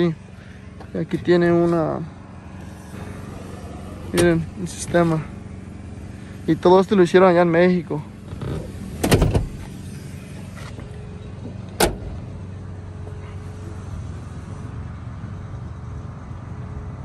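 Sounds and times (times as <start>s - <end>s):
seat back thump: 8.3s - 9.7s, 11.8s - 12.2s.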